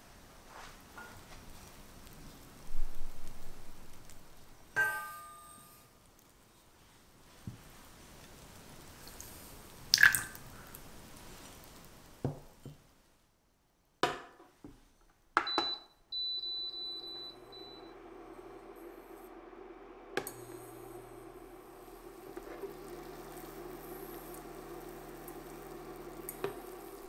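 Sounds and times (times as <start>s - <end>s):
cooktop beep: 15.4s - 19.0s
electrical hum: 16.1s - 27.0s.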